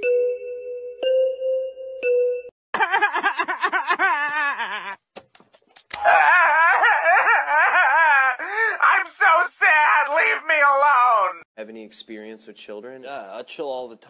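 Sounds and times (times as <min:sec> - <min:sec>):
ringing chime tones: 0:00.0 - 0:02.5
cartoon character wailing and sobbing: 0:06.0 - 0:11.2.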